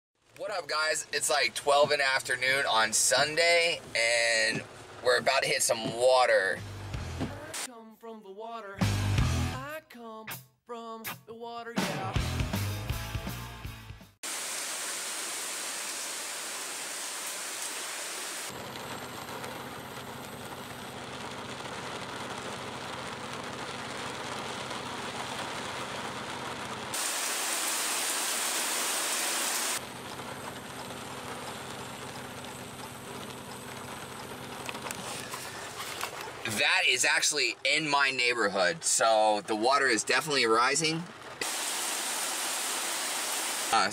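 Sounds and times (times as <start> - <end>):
heavy rain falling: 14.3 - 37.6, 38.2 - 43.9.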